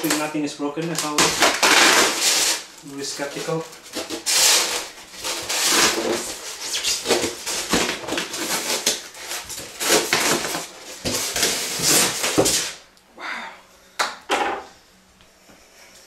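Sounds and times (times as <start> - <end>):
styrofoam scraping and squeaking: 0.0 - 12.8.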